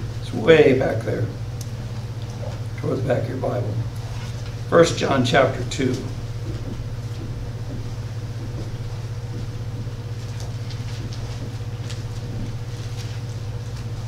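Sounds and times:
steady low hum: 0.0s - 14.0s
pages being turned: 10.1s - 14.0s.

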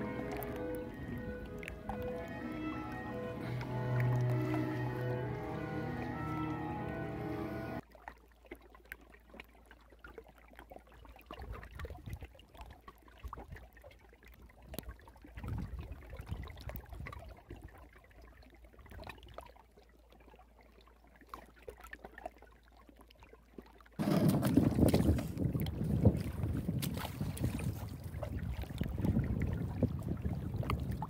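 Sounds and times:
river water lapping on gravel: 0.0s - 8.6s, 24.0s - 31.0s.

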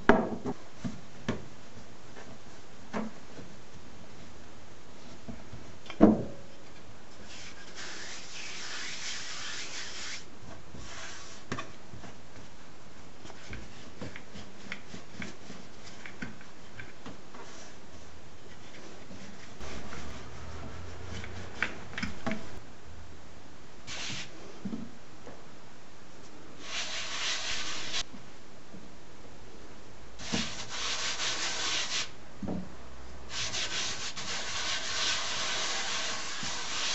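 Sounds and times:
rolling pin rubbing on dough: 7.2s - 11.5s, 13.3s - 16.2s, 18.7s - 22.0s, 26.6s - 28.0s, 30.2s - 32.1s, 33.3s - 36.9s.

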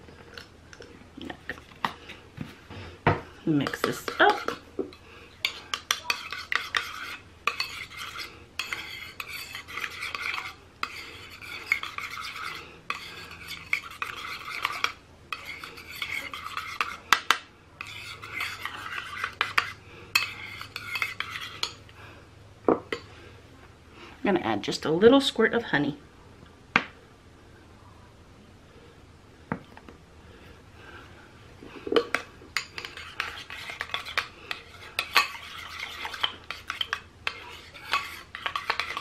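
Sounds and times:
spoon scraping ceramic bowl: 3.6s - 4.6s, 5.4s - 21.8s, 32.0s - 39.0s.

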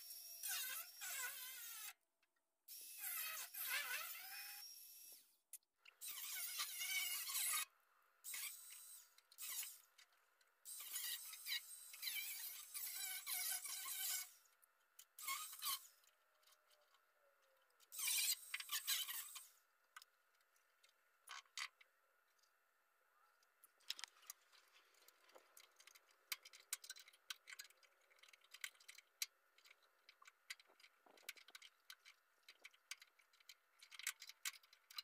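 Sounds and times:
angle grinder cutting metal: 6.0s - 7.6s.

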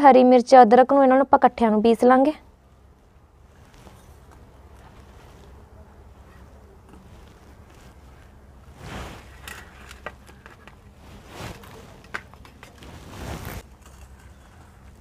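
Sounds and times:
soft rustles: 2.8s - 15.0s.

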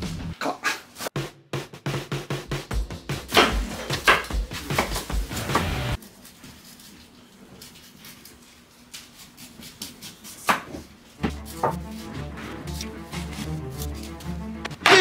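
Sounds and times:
background music: 0.0s - 0.4s, 1.3s - 6.0s, 11.2s - 15.0s
knife slicing pineapple rind: 6.0s - 10.8s, 13.4s - 14.3s.

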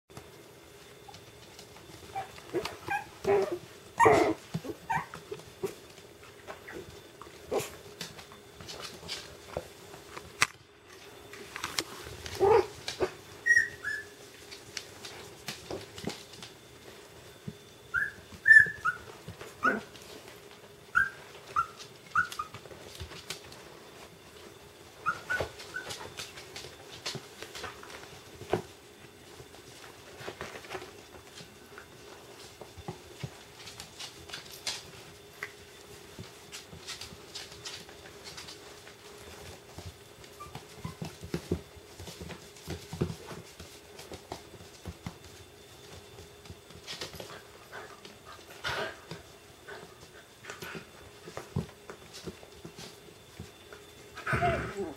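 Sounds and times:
paws clicking on wooden floor: 0.1s - 54.6s
puppies yipping and whimpering: 2.0s - 5.8s, 12.3s - 14.2s, 17.9s - 19.9s, 20.9s - 22.8s, 25.0s - 26.2s, 40.2s - 41.6s.

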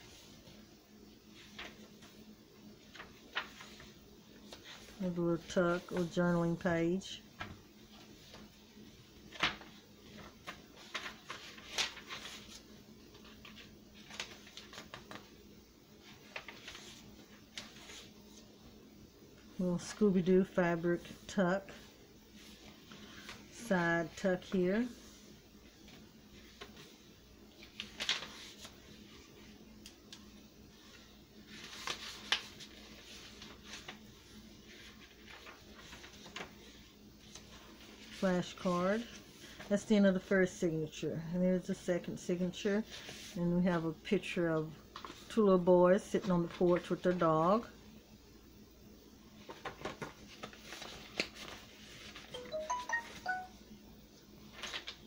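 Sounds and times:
faint steady hum: 0.0s - 55.0s
paper pages rustling: 1.3s - 6.6s, 7.4s - 8.6s, 9.2s - 15.4s, 16.0s - 18.5s, 21.0s - 39.7s, 42.8s - 43.4s, 44.9s - 45.4s, 46.2s - 47.2s, 49.4s - 53.5s, 54.4s - 55.0s.

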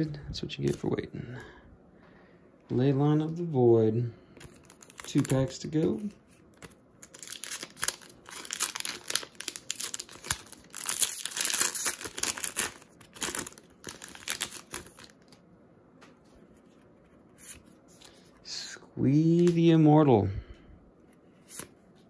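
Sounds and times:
faint rustling of cards: 0.0s - 19.8s
foil wrapper tearing and crinkling: 4.5s - 15.4s.

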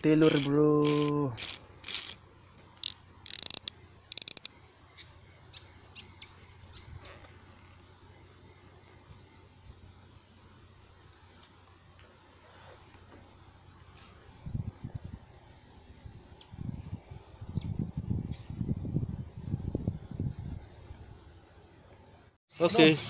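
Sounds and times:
high insect drone: 0.0s - 23.0s
fishing reel clicking: 0.2s - 2.2s, 2.8s - 4.5s.

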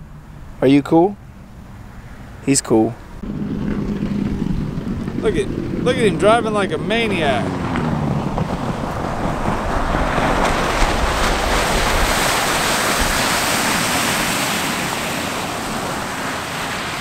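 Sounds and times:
motorboat engine rushing: 1.2s - 17.0s
wind on microphone: 3.0s - 17.0s
spray of boat wake: 9.0s - 17.0s.

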